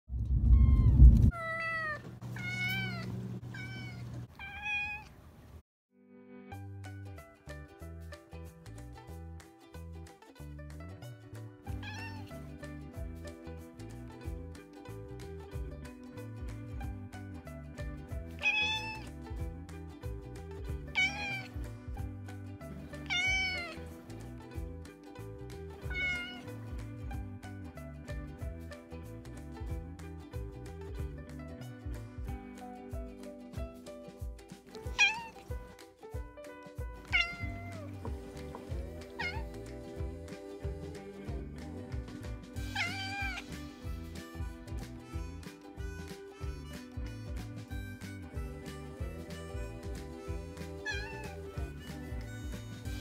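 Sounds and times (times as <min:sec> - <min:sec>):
loud low rumble: 0:00.1 - 0:01.4
cat meowing: 0:00.4 - 0:05.2, 0:11.7 - 0:12.3, 0:18.4 - 0:19.1, 0:20.9 - 0:21.6, 0:23.0 - 0:23.8, 0:25.9 - 0:26.5, 0:34.9 - 0:35.5, 0:37.1 - 0:38.0, 0:39.1 - 0:39.5, 0:42.6 - 0:43.5, 0:50.8 - 0:51.4
background music: 0:06.0 - 0:53.0.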